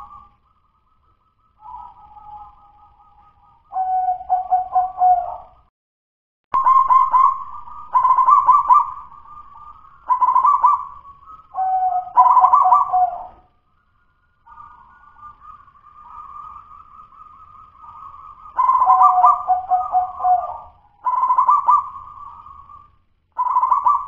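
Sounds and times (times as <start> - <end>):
dove cooing: 3.7 - 5.6, 6.6 - 13.5, 14.5 - 22.8, 23.4 - 24.0.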